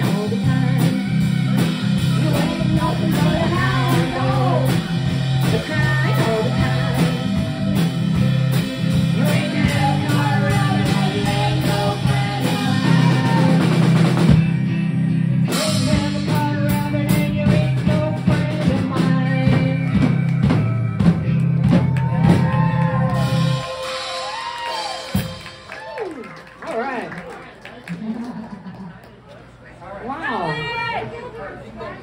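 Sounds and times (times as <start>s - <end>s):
person singing: 0.0s - 14.1s, 15.5s - 21.2s
drum beat: 0.0s - 14.6s, 15.8s - 26.0s
live rock band playing: 0.0s - 26.0s.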